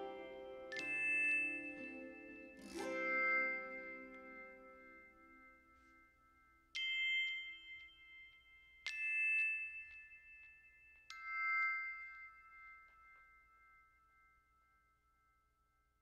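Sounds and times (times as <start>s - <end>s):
bell-like keyboard chords: 0.0s - 5.8s.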